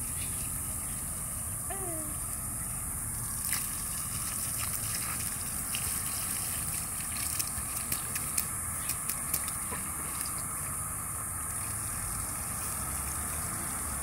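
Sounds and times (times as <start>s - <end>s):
water splashing from garden hose: 3.2s - 10.8s, 11.4s - 14.0s.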